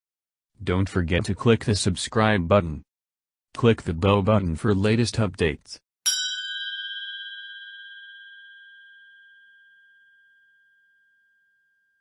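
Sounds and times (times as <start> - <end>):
bell-like chime ringing: 6.1 - 12.0.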